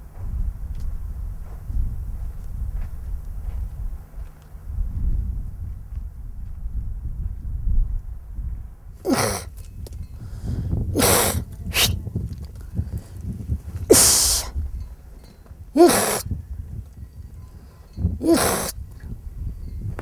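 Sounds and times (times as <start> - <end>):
woman's hissing herding calls: 9.0 - 9.5, 11.0 - 12.0, 13.9 - 14.6, 15.8 - 16.3, 18.2 - 18.8.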